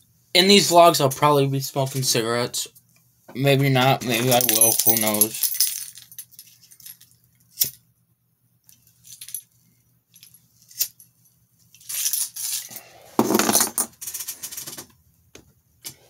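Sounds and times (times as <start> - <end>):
keys jingling: 4.2 - 7.1
breathing and handling noise: 11.7 - 13.6.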